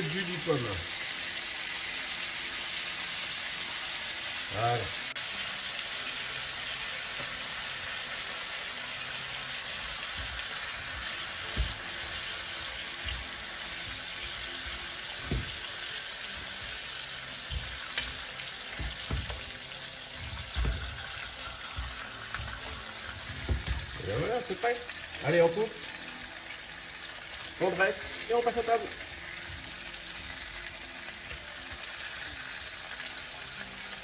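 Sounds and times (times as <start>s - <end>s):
pork chops sizzling in pan: 0.0s - 34.0s
utensils knocking in pan: 9.8s - 24.0s.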